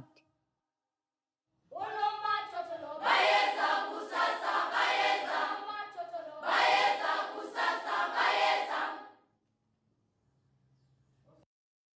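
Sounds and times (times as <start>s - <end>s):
choir singing: 1.8s - 9.2s.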